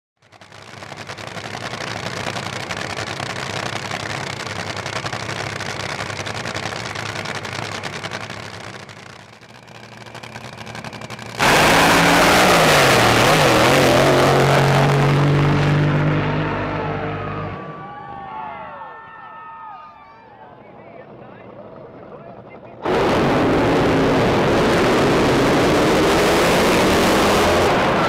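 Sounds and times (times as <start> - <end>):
drag boat engine rumbling: 0.2 - 17.7.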